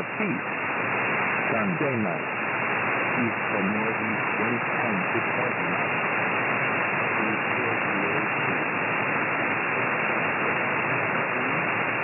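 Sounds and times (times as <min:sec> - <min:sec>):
shortwave radio static hiss: 0:00.0 - 0:12.0.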